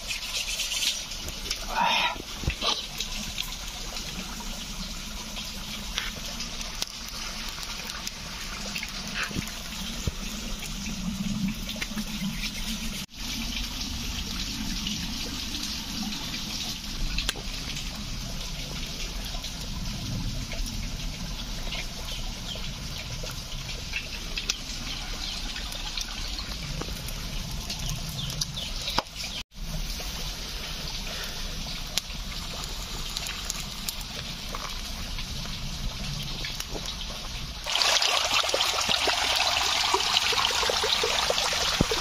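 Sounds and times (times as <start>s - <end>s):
campfire crackling: 0.0s - 13.1s, 16.6s - 42.0s.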